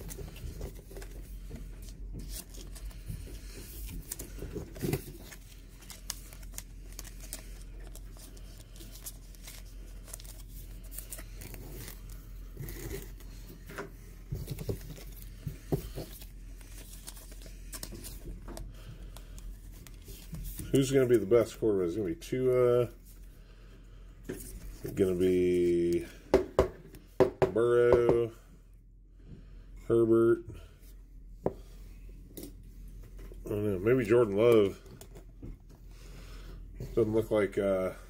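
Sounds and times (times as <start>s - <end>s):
plastic wrappers crinkling: 0.0s - 13.3s, 14.5s - 21.1s
cards sliding and flipping: 0.1s - 18.4s, 19.1s - 20.9s.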